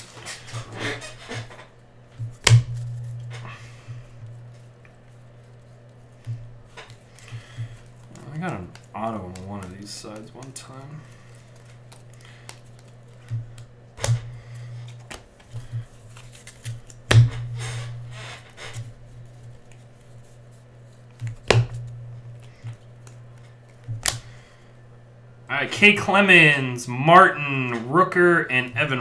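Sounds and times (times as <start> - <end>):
steady low hum: 0.0 - 29.0
cards sliding and flicking: 5.6 - 24.4.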